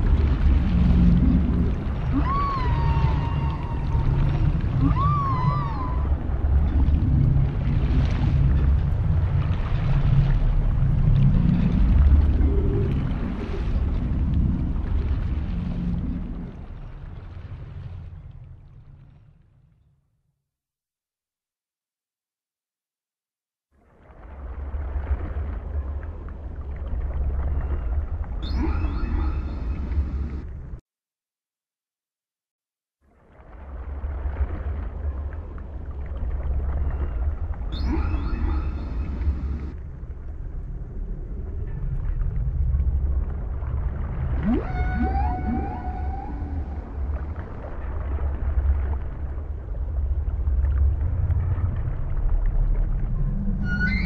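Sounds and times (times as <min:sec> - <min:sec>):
whale song: 0:00.0 - 0:18.9, 0:24.3 - 0:30.6, 0:33.2 - 0:54.0
deep steady rumble: 0:00.0 - 0:19.5, 0:33.5 - 0:54.0
wavering whale call: 0:02.0 - 0:06.5, 0:28.4 - 0:30.0, 0:37.7 - 0:39.7, 0:44.3 - 0:47.8, 0:53.2 - 0:54.0.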